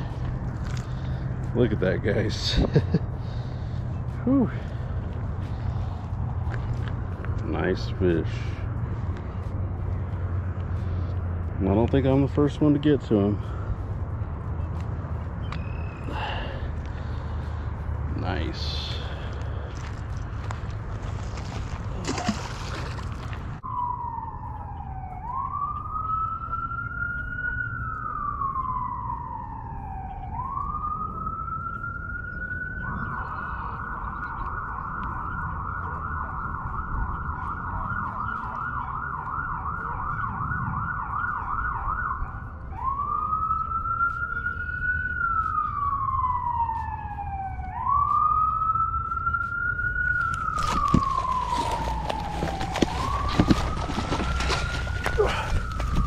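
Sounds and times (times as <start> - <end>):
emergency siren wail and yelp: 4.0 - 20.7, 23.6 - 56.0
water splashing: 20.9 - 23.6, 50.2 - 56.0.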